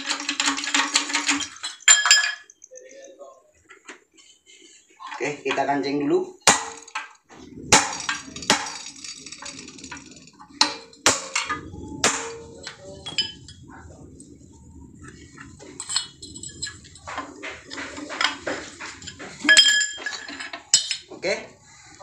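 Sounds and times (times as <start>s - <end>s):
hammer striking steel: 6.4s - 9.1s, 10.6s - 13.5s.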